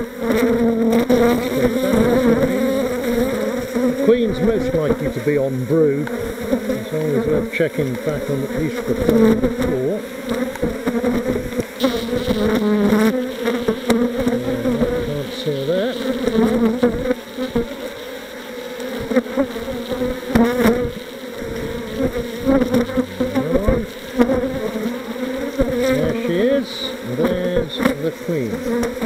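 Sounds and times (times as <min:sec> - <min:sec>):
honey bees buzzing: 0:00.0 - 0:29.0
wooden hive frames knocking: 0:20.3 - 0:24.7.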